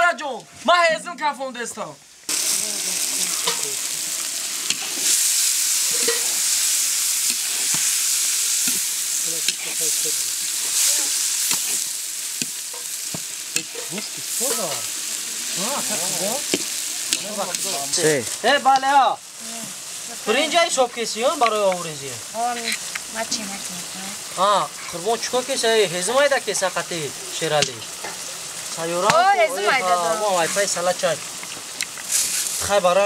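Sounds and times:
food sizzling in hot oil: 0.0 - 33.0.

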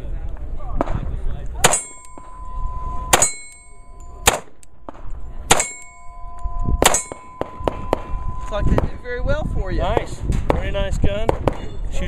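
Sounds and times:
pistol shots: 1.6 - 2.2, 3.1 - 3.6, 4.2 - 6.0, 6.8 - 8.1
metallic ring of steel targets: 1.6 - 10.3.

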